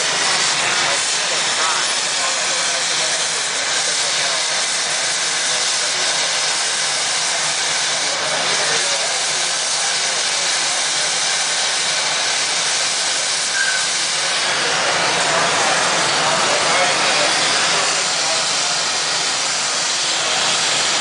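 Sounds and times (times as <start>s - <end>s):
gas torch flame hissing: 0.0s - 21.0s.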